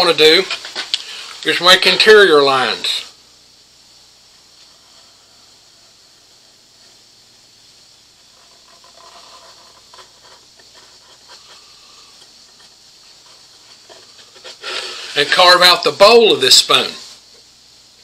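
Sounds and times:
steady hiss: 0.0s - 18.0s
marker pen scratching on wood: 8.3s - 11.7s, 12.5s - 14.6s.

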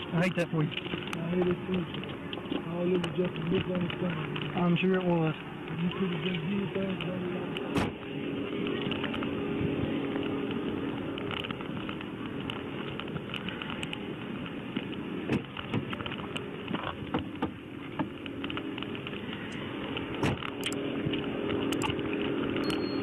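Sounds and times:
car engine and ventilation hum: 0.0s - 23.0s
sharp sound effect clicks: 20.6s - 20.8s, 21.7s - 22.0s.

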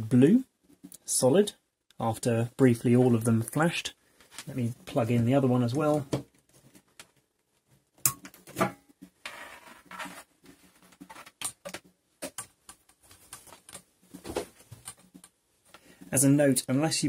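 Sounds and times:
cable being handled and dragged: 3.2s - 16.4s.

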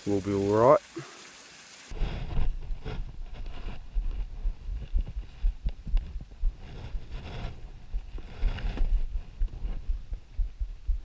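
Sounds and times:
footsteps crunching in snow: 1.9s - 10.3s
low thuds on microphone: 2.0s - 11.0s.

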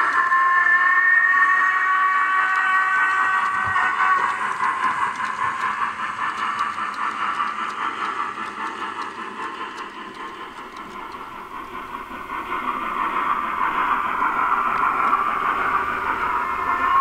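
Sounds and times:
model train motor whirring: 0.0s - 17.0s
wagon wheels rattling on track: 3.1s - 16.5s.

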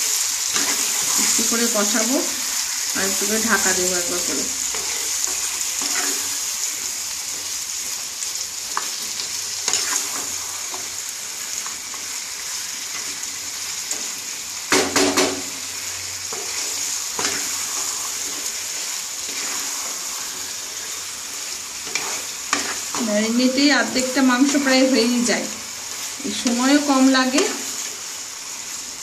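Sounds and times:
chicken sizzling in oil: 0.0s - 29.0s
wooden spatula scraping pan: 21.8s - 23.1s.

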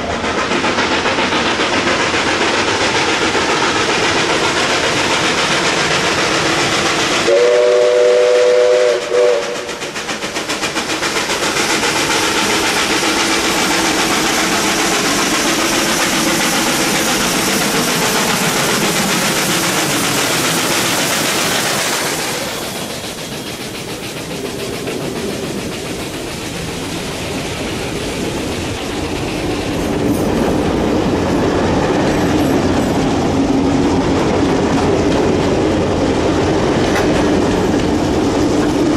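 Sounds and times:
steam locomotive exhaust beats: 0.0s - 38.9s
train wheels clicking over rail joints: 0.0s - 38.9s
steam locomotive whistle: 7.2s - 9.8s.

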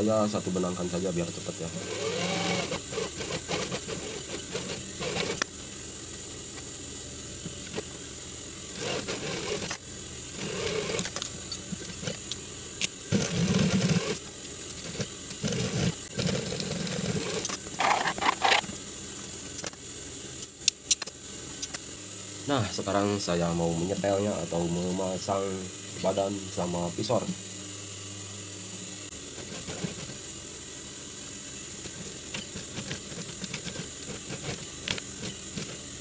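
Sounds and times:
motor hum: 0.0s - 36.0s
industrial sewing machine stitching: 1.8s - 5.4s, 8.7s - 9.8s, 10.4s - 11.1s, 13.1s - 14.2s.

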